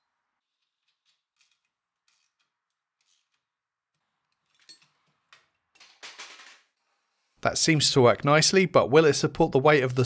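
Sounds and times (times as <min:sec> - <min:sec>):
metal nuts clicking and scraping: 0:00.4 - 0:06.5.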